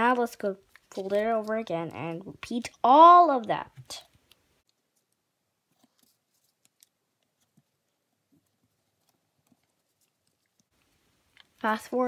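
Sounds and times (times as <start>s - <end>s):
paper being folded: 4.7s - 10.9s.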